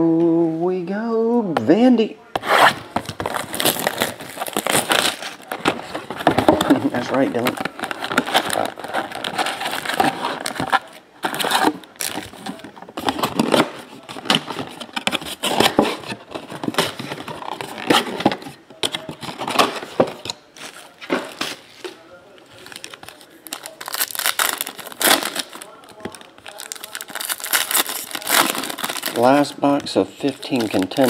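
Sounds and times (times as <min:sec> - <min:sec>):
foil wrappers crinkling: 0:02.9 - 0:18.3, 0:22.4 - 0:31.0.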